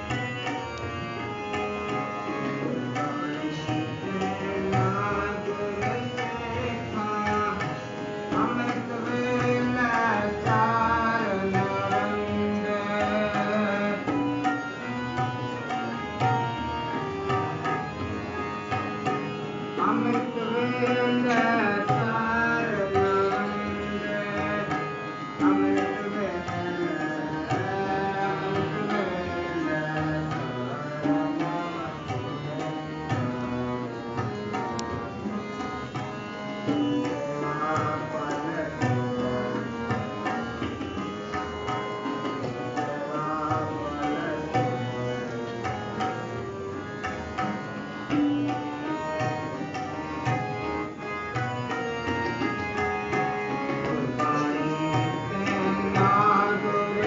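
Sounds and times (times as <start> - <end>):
harmonium: 0.0 - 57.0
tabla strokes: 1.5 - 12.4, 13.0 - 29.3, 34.2 - 45.0, 45.6 - 57.0
devotional singing: 2.0 - 14.5, 19.8 - 34.1, 37.0 - 40.0, 42.1 - 45.6, 53.6 - 57.0.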